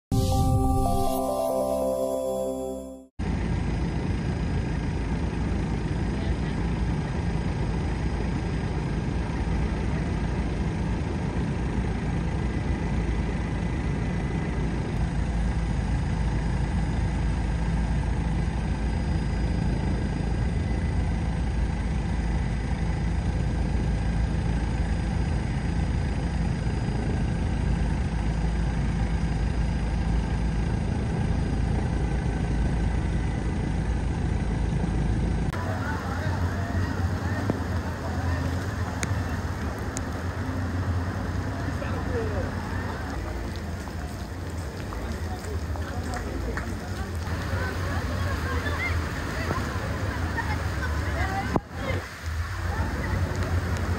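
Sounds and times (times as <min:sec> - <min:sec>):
aircraft engine drone: 0:00.1 - 0:44.5.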